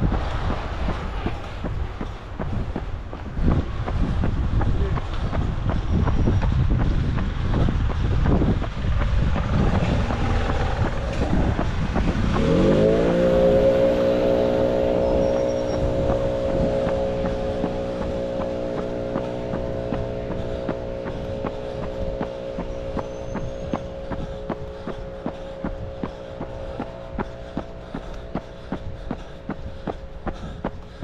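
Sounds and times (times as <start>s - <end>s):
rumbling traffic: 0.0s - 31.0s
wind noise: 0.0s - 31.0s
vehicle engine revving: 6.8s - 31.0s.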